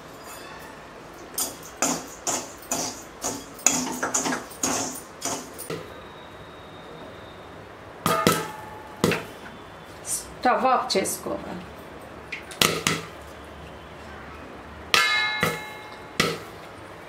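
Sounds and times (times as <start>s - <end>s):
sharp metallic knock: 8.1s - 9.3s, 15.0s - 16.5s.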